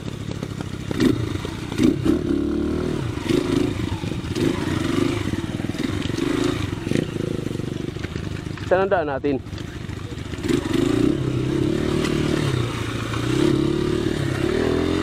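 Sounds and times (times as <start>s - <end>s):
dirt bike engine running: 0.0s - 15.0s.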